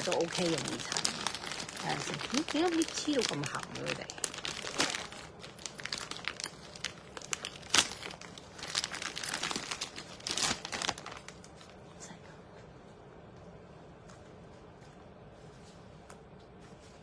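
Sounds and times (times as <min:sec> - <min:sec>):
wrapping crinkling and tearing: 0:00.0 - 0:11.8.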